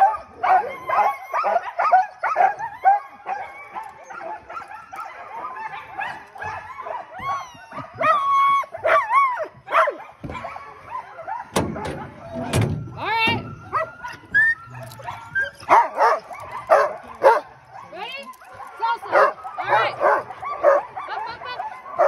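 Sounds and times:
dogs yowling: 0.0 - 22.0
sled dogs barking and whining: 0.0 - 22.0.

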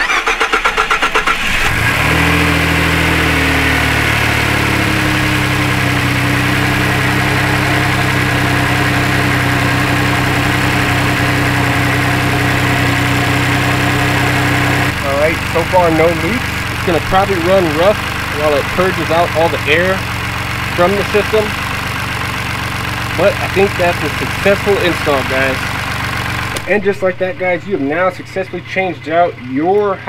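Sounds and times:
engine starter cranking: 0.0 - 1.8
car engine idling: 0.0 - 30.0.

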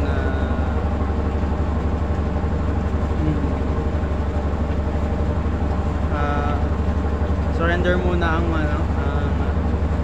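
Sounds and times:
steady low rumble: 0.0 - 10.0.

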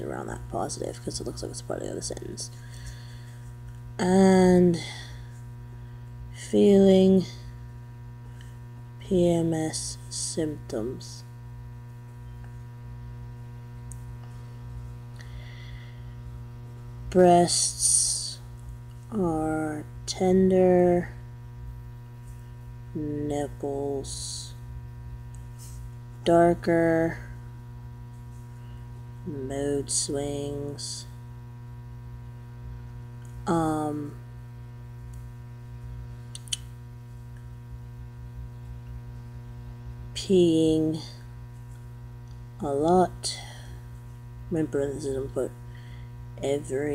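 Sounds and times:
electrical mains hum: 0.0 - 46.9
small click: 36.3 - 36.7.

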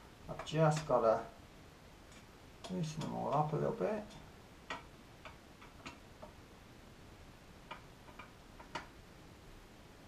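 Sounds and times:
screwdriver clicks and taps: 7.7 - 8.9.

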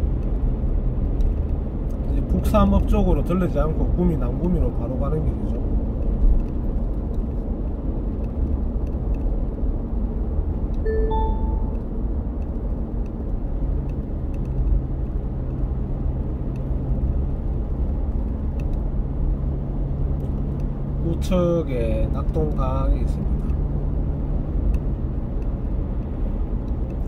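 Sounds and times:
car cabin road noise: 0.0 - 27.0
two-note electronic beep: 10.9 - 11.8.

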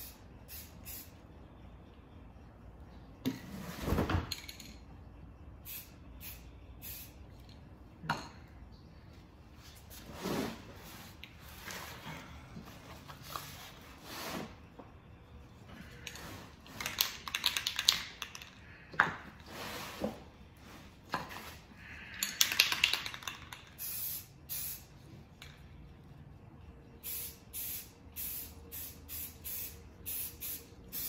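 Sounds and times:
spray paint hiss: 0.0 - 1.2, 5.6 - 7.2, 23.7 - 24.9, 27.0 - 31.0
spray can rattling: 16.6 - 18.6, 22.2 - 24.8.

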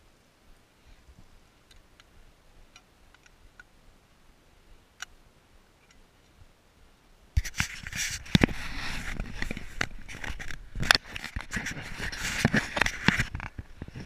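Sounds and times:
clothing rustling against camera: 7.4 - 14.0.

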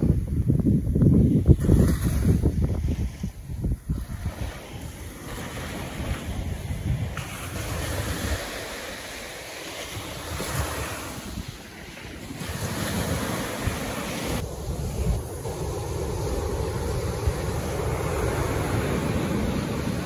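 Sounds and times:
wind buffeting microphone: 0.0 - 20.0
ocean surf breaking on beach: 1.2 - 20.0.

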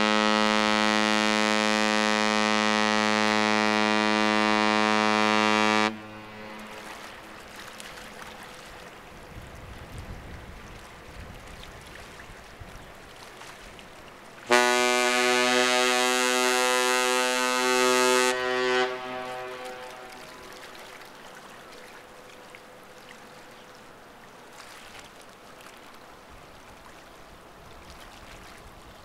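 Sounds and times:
ship horn deep blast: 0.0 - 7.6, 14.5 - 21.0.

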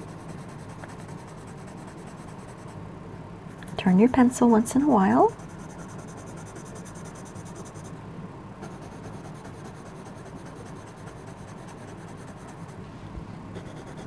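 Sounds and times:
pencil scratching on paper: 0.0 - 2.7, 5.3 - 7.9, 8.6 - 12.8, 13.6 - 14.0
electric fan hum: 0.0 - 14.0.

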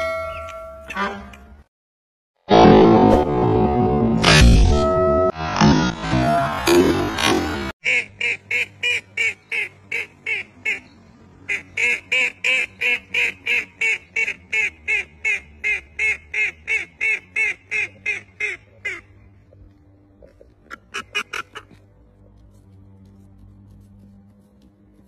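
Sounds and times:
duck quacking rapidly: 20.7 - 21.8.

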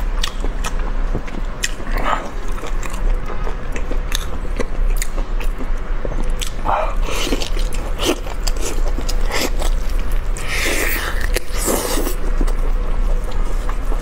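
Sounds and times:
person chewing meat off bone: 0.2 - 14.0.

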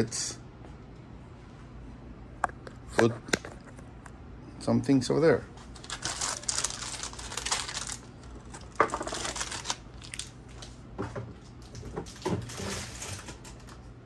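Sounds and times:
plastic rustling and crinkling: 5.6 - 13.9.

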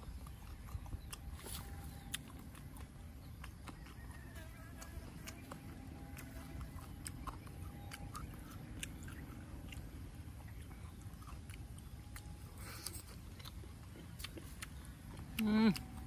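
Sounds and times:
low background hum: 0.0 - 16.0
person chewing food: 0.0 - 16.0.

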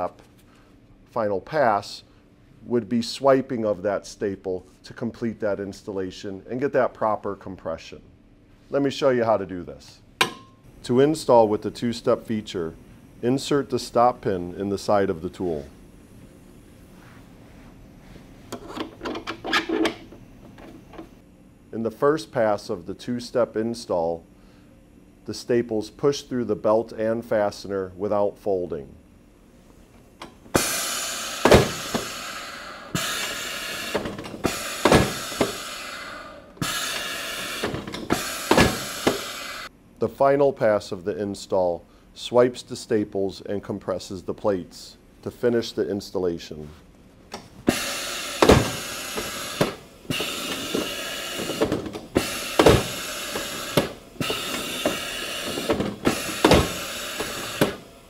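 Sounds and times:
machine hissing: 30.5 - 39.7, 47.6 - 58.0
staple applicator motor running: 47.7 - 58.0.

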